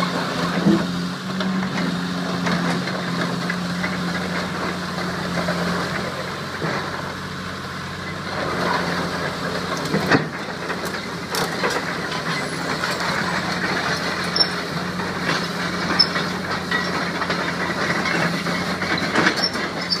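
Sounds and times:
excavator diesel engine running: 0:00.0 - 0:20.0.

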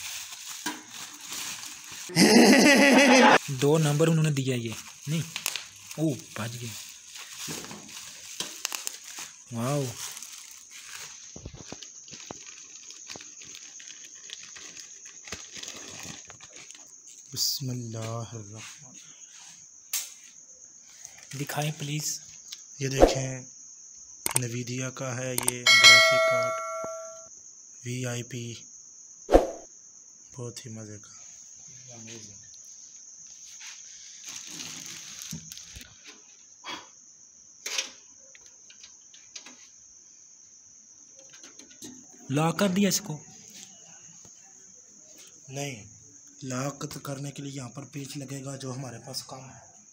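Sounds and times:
plastic packaging crinkling: 0:00.0 - 0:02.1, 0:03.4 - 0:17.2, 0:34.1 - 0:35.8
crickets chirring: 0:00.0 - 0:49.9
knocks and rustles of handling: 0:04.7 - 0:13.6.

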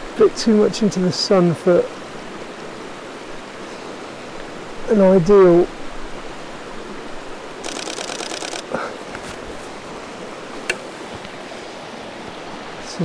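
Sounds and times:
river rushing: 0:00.0 - 0:13.0
camera shutter burst: 0:07.6 - 0:08.7
sharp camera click: 0:07.6 - 0:08.8.

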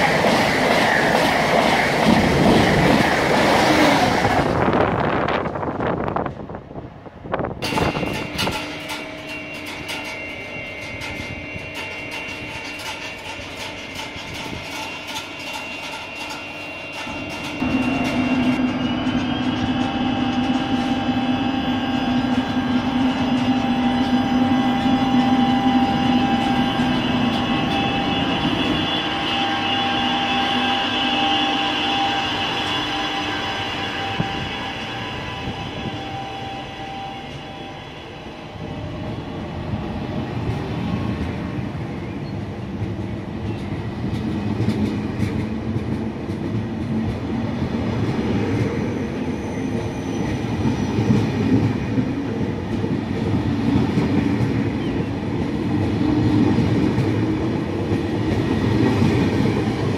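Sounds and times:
train rumbling past: 0:00.0 - 0:59.9
train whine: 0:00.0 - 0:59.9
wheels rolling on rails: 0:07.6 - 0:21.5, 0:40.2 - 0:59.9.

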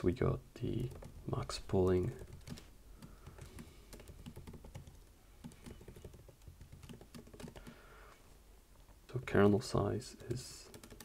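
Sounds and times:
computer keyboard typing: 0:00.7 - 0:01.2, 0:02.0 - 0:07.8, 0:10.1 - 0:11.0.

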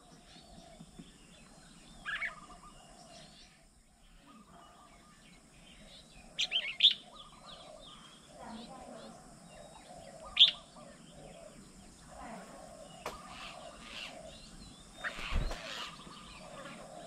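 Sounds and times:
many birds chirping: 0:00.0 - 0:17.0
loud sharp bird call: 0:15.0 - 0:16.1.

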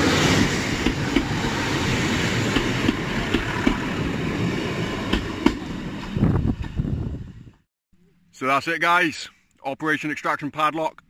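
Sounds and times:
train wheels rumbling on rail: 0:00.0 - 0:07.6.

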